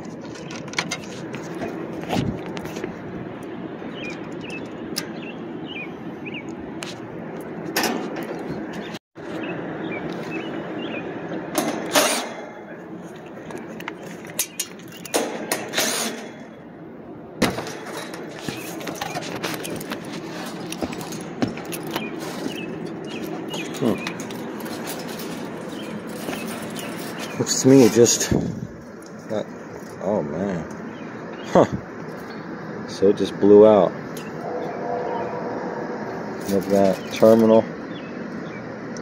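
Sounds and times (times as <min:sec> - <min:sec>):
handling clicks and knocks: 0:00.0 - 0:05.2, 0:17.4 - 0:27.4
air conditioner unit humming: 0:00.0 - 0:39.0.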